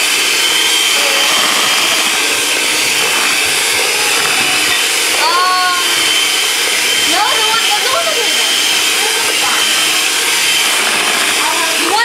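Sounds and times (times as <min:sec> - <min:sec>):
electric hand mixer whining: 0:00.0 - 0:12.0.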